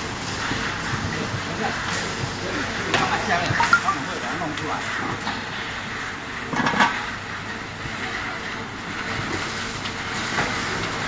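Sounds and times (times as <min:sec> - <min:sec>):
roasting machine rushing: 0:00.0 - 0:11.0.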